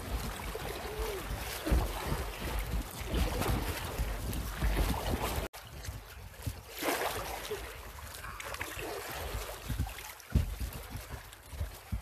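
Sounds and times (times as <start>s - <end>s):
loud splash: 0.0s - 5.5s, 6.7s - 10.4s
wind rumble on microphone: 0.0s - 6.7s, 7.8s - 12.0s
paddle strokes splashing: 0.0s - 12.0s
water lapping against a kayak: 0.0s - 12.0s.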